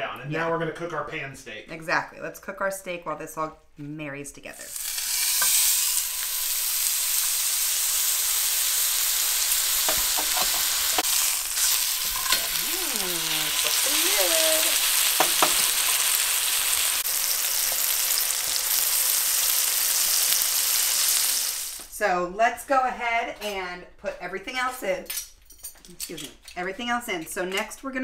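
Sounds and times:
steak sizzling in skillet: 4.6s - 21.9s.

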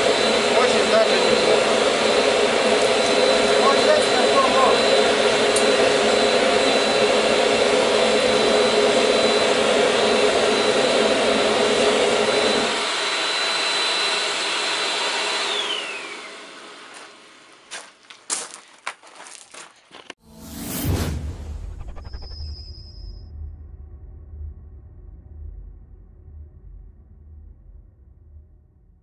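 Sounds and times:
electric air blower whining: 0.0s - 17.5s
low rumble: 20.2s - 29.0s.

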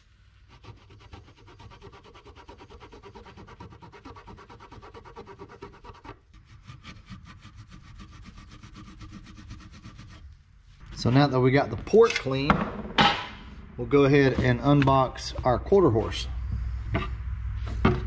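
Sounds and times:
paper towel scrubbing circuit board: 0.3s - 10.8s.

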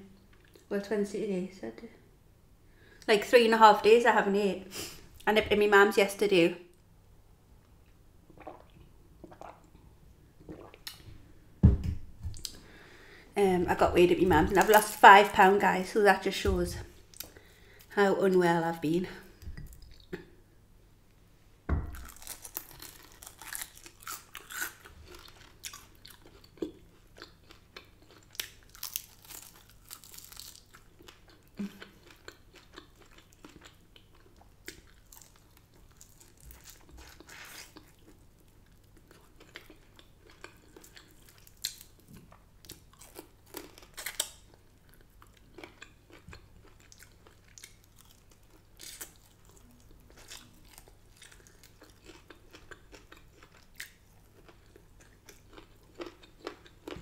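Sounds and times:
crunching chicken wings: 21.9s - 33.8s
chewing: 21.9s - 57.0s.

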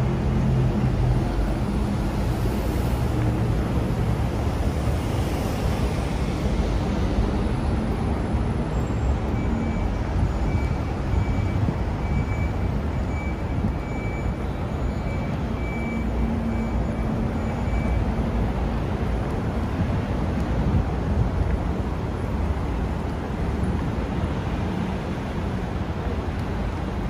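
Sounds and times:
road traffic rumble: 0.0s - 27.0s.

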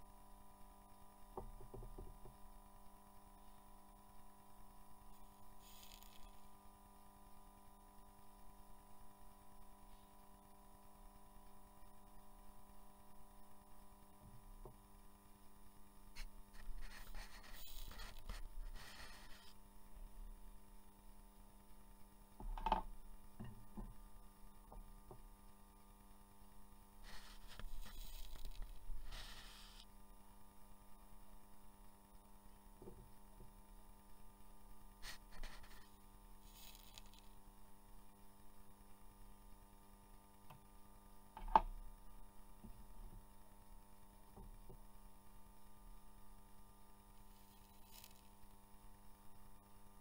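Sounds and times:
low electrical hum: 0.0s - 50.0s
faint ticks: 35.0s - 37.4s.

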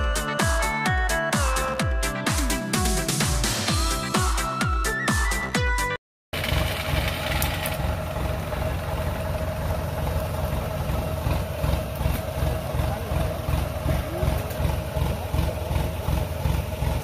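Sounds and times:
farm machine engine idling: 6.4s - 17.0s.

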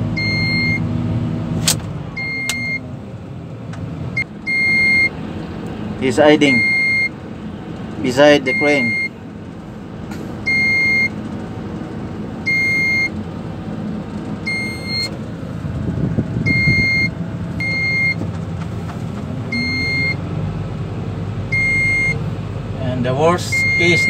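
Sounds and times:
electronic warning beeps: 0.2s - 0.8s, 2.2s - 2.8s, 4.2s - 5.2s, 6.4s - 7.2s, 8.4s - 9.2s, 10.5s - 11.2s, 12.5s - 13.2s, 14.4s - 15.2s, 16.5s - 18.2s, 19.5s - 20.2s, 21.5s - 22.2s, 23.5s - 24.0s.

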